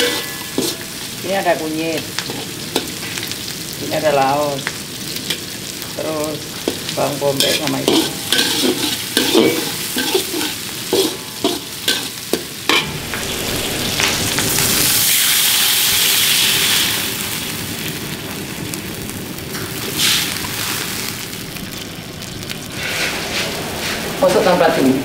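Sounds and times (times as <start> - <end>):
metal spatula scraping a wok: 0.0 - 1.4, 7.4 - 14.3, 22.7 - 24.8
vegetables sizzling in oil: 0.0 - 25.0
water hissing in hot wok: 0.0 - 25.0.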